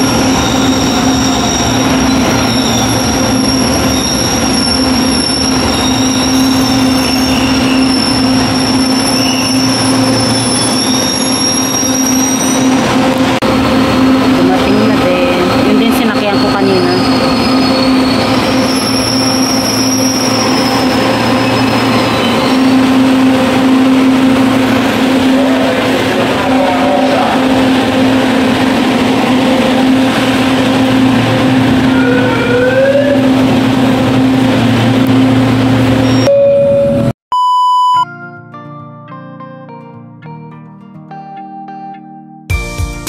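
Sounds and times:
train hum and rumble: 0.0 - 37.1
short electronic beep: 36.0 - 38.1.

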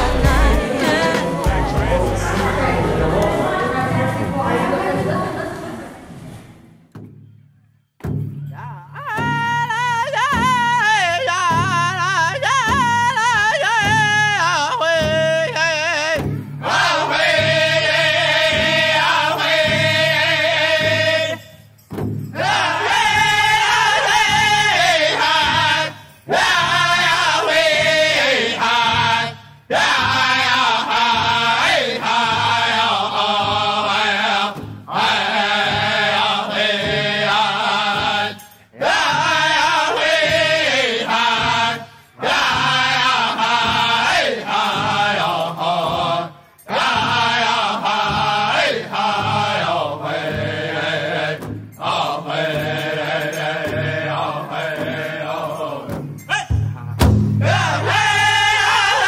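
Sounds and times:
chanted song: 0.0 - 5.6, 8.5 - 59.0
low accompaniment: 0.0 - 8.5.

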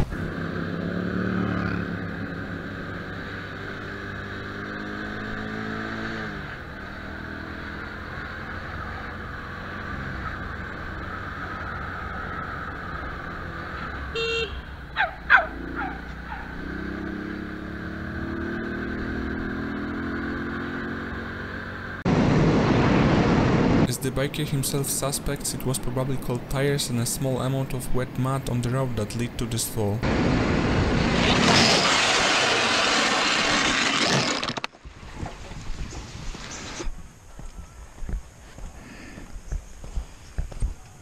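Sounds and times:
motorcycle engine: 0.0 - 23.9.

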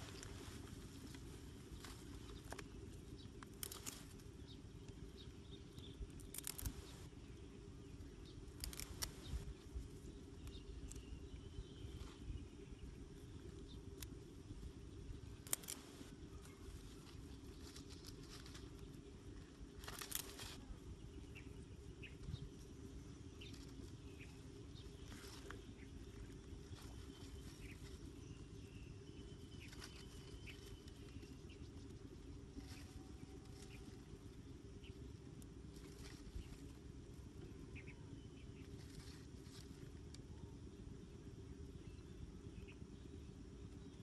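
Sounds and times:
faint chirps: 0.0 - 44.0
low outdoor background: 0.0 - 44.0
plant stems snapping and rustling: 1.8 - 2.8, 3.4 - 5.0, 6.1 - 7.1, 8.5 - 9.5, 15.4 - 18.9, 19.8 - 20.6.

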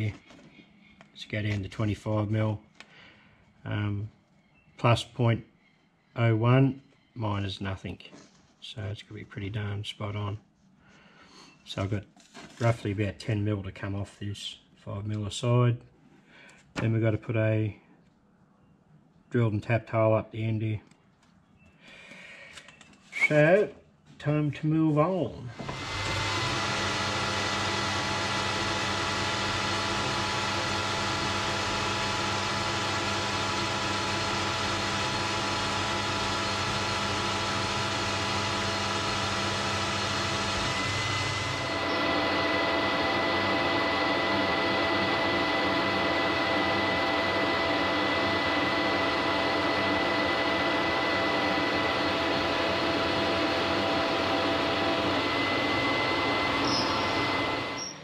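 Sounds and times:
metal lathe whining: 25.6 - 58.0.

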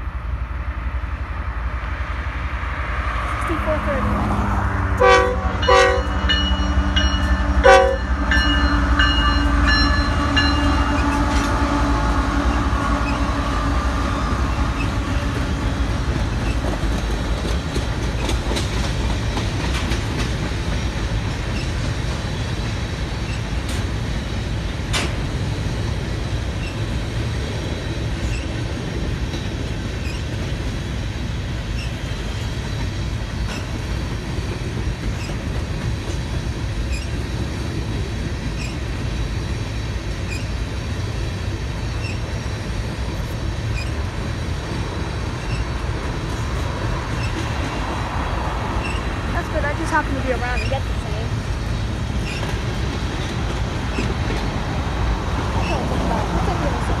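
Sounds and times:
train wheels rumbling on rails: 0.0 - 57.0
locomotive horn blast: 4.9 - 15.8.

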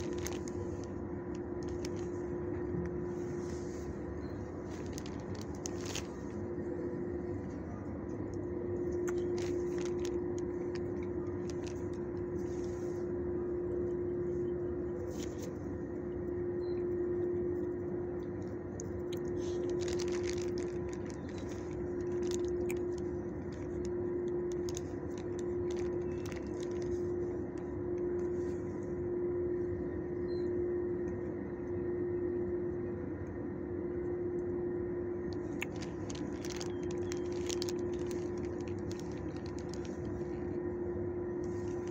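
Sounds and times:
plastic zipper bag crinkling: 0.0 - 7.6, 8.8 - 13.1, 15.0 - 15.6, 18.8 - 28.8, 35.2 - 40.6, 41.4 - 41.9
low rumble: 0.0 - 41.9
steady mechanical hum: 0.0 - 41.9.

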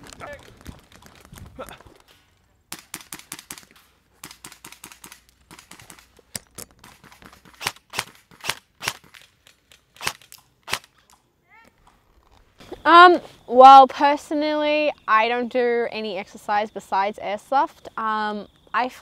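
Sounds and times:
airsoft rifles firing: 2.7 - 9.2, 10.0 - 10.9.

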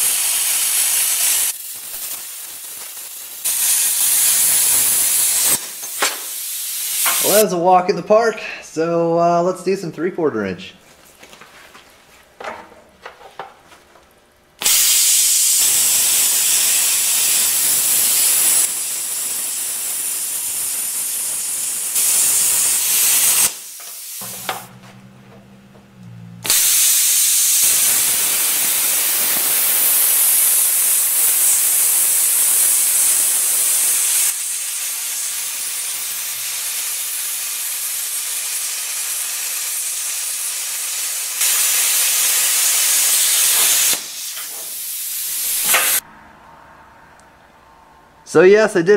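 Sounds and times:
plasma cutter hissing: 0.0 - 7.5, 14.6 - 24.7, 26.4 - 46.0
low hum: 24.2 - 26.8, 46.0 - 48.3.

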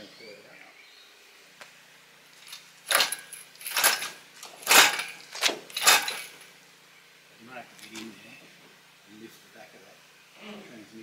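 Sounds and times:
engine hoist metallic rattling: 2.4 - 6.5.

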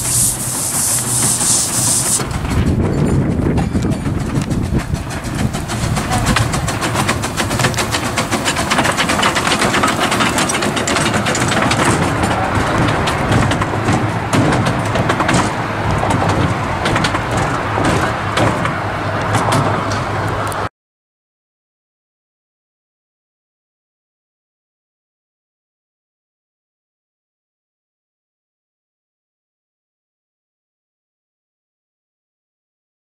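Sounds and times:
miniature steam train passing: 0.0 - 20.7
wheels clicking and rattling: 0.0 - 20.7.

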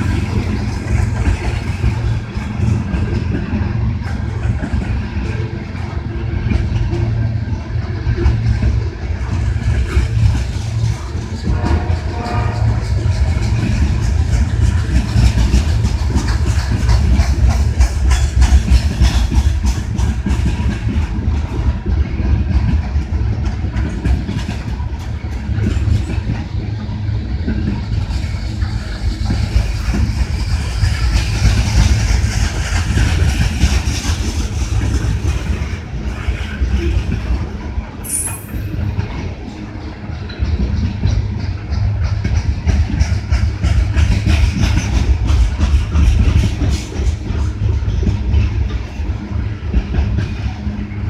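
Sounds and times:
heavy train rumble: 0.0 - 51.0
train wheels clacking over rail joints: 0.0 - 51.0
high squeal: 38.0 - 38.9.

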